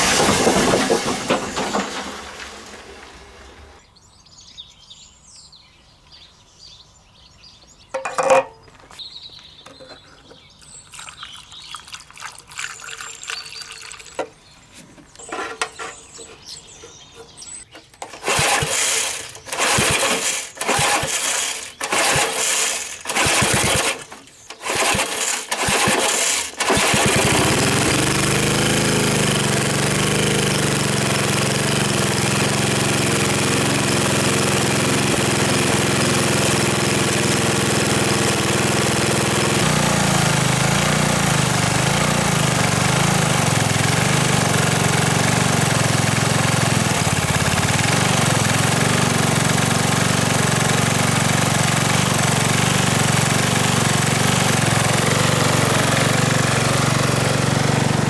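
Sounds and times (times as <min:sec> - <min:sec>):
lawn mower engine running: 0:00.0 - 0:03.8, 0:07.9 - 0:08.6, 0:15.2 - 0:58.0
handling noises: 0:07.9 - 0:10.5, 0:14.2 - 0:18.3
recoil cord pulls: 0:18.0 - 0:28.0.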